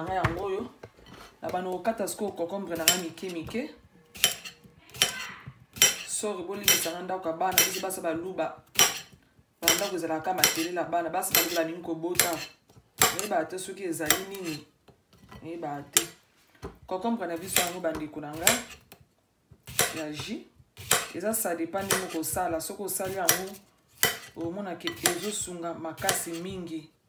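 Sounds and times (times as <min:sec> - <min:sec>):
knife slicing onto ceramic plate: 0:04.2 - 0:05.2, 0:08.8 - 0:10.7, 0:19.7 - 0:20.2, 0:20.8 - 0:21.1, 0:23.0 - 0:25.4.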